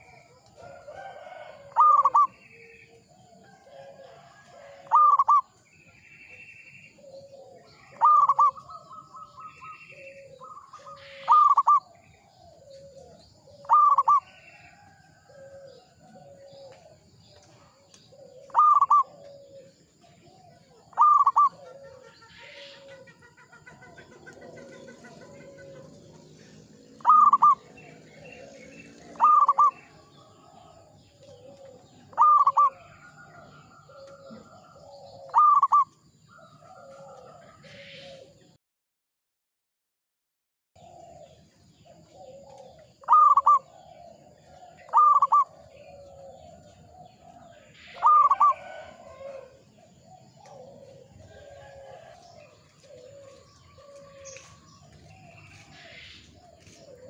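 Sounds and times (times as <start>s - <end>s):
dove doubled call: 1.1s - 2.4s, 4.7s - 5.4s, 7.0s - 11.8s, 13.6s - 14.3s, 18.3s - 19.6s, 20.9s - 23.1s, 27.0s - 28.5s, 29.1s - 29.9s, 31.4s - 33.0s, 33.9s - 35.8s, 42.2s - 44.0s, 44.9s - 46.3s, 47.9s - 49.5s
soft low dove coos: 6.8s - 23.3s, 23.9s - 38.5s, 40.8s - 57.0s.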